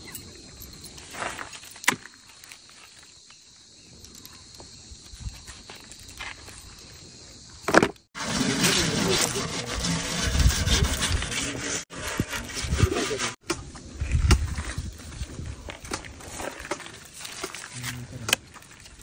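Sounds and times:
insects buzzing: 0.0 - 11.4.

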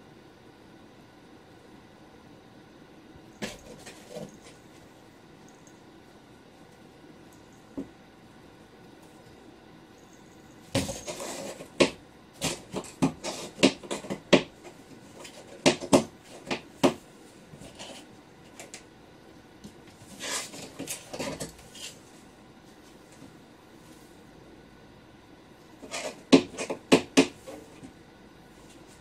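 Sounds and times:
cat scratching cardboard box: 10.7 - 17.0, 19.9 - 22.0, 25.8 - 27.8.

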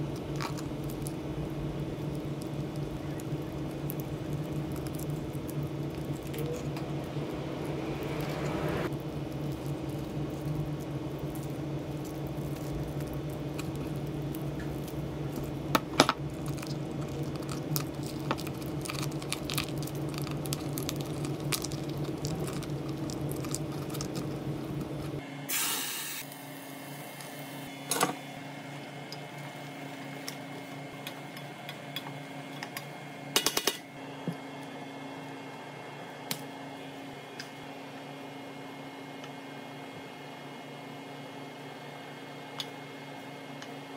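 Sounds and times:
steady hum: 0.0 - 43.9
hands squishing lobster: 9.3 - 25.2.

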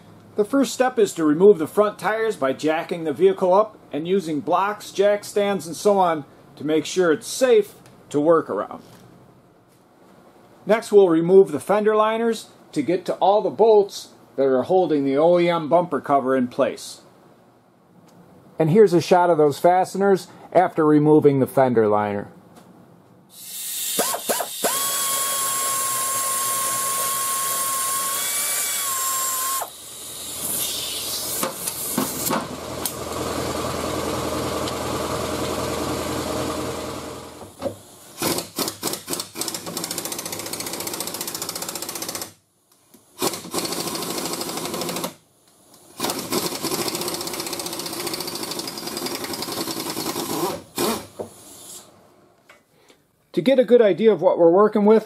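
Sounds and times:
power driver whining: 23.7 - 38.4.

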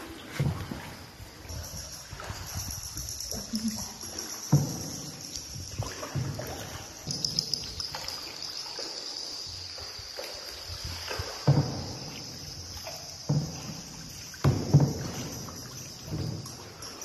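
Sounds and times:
paddle strokes in water: 0.0 - 17.0
water sloshing around boat: 0.0 - 17.0
knocks on boat hull: 14.4 - 15.2.

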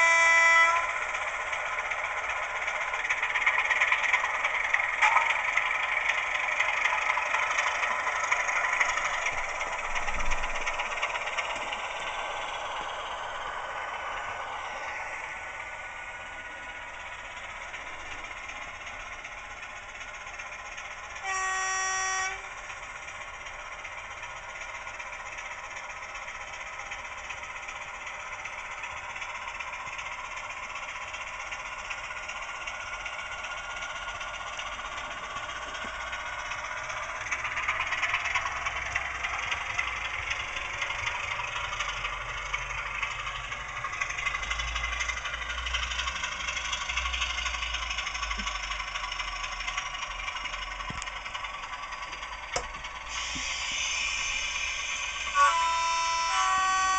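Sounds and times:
model locomotive horn blast: 0.0 - 1.4, 21.1 - 22.7, 53.1 - 56.9
diesel engine sound from small speaker: 0.0 - 56.9.

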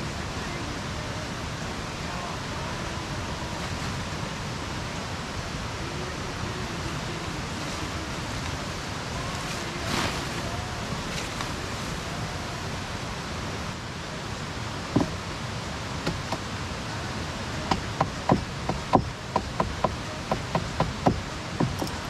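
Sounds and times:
steady rushing noise: 0.0 - 22.0
sharp knocks: 17.7 - 21.9.

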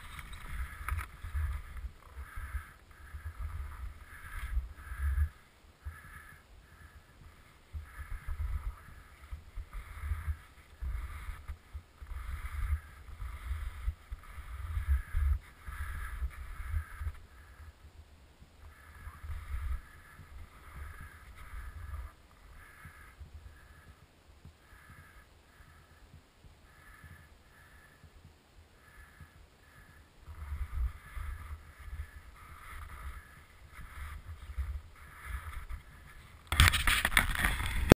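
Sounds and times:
rustling: 0.0 - 6.3, 30.3 - 37.9
hand rubbing and knocking camera: 33.7 - 37.9.

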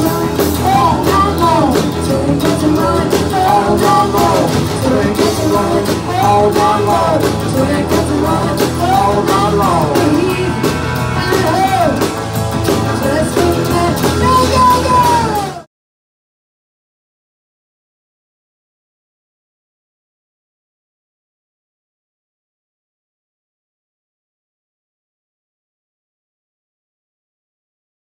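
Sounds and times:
woman singing: 0.0 - 12.0, 13.0 - 15.6
bass guitar: 0.0 - 15.7
drum kit: 0.0 - 15.7
electric guitar: 0.0 - 15.7.

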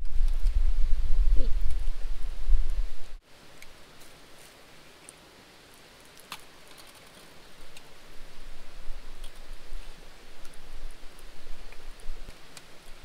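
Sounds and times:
low rumble: 0.0 - 3.2
campfire crackling and popping: 0.0 - 13.0.

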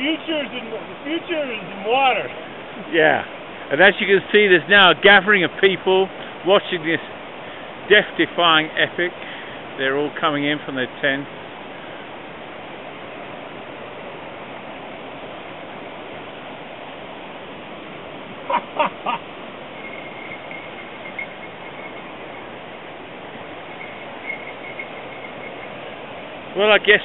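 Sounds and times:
creek rushing over rocks: 0.0 - 27.0
short calls: 18.3 - 26.9.

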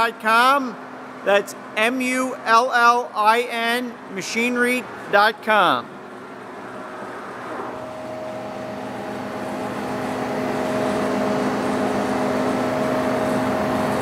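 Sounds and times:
motor humming: 6.0 - 14.0.

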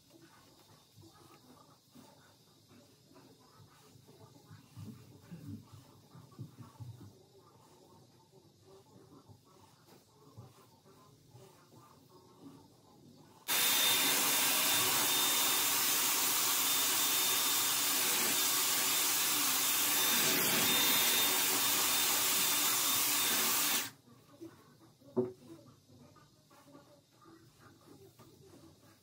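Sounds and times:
hot-air styler blowing: 13.5 - 23.9.

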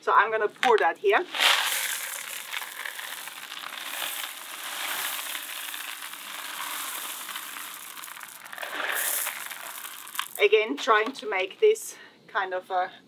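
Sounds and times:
gravel pouring onto soil: 1.2 - 10.6.

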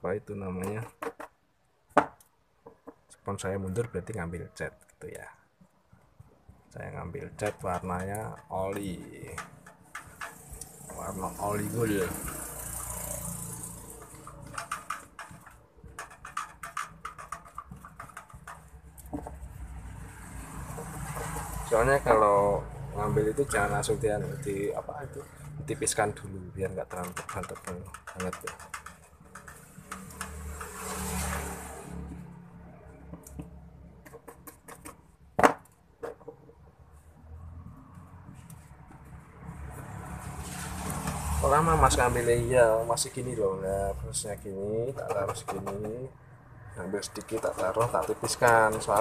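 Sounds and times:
sponge dabbing against a wall: 7.6 - 21.7, 47.1 - 49.0
sponge tapping wall: 14.1 - 19.4, 26.9 - 30.7, 45.0 - 46.1.

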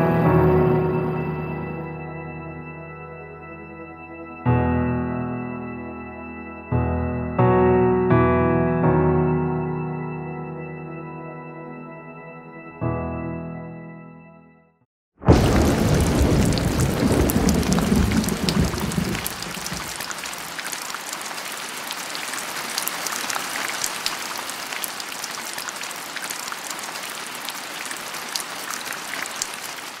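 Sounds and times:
deep rumble of thunder: 15.2 - 20.3
rain falling steadily: 15.3 - 30.0.

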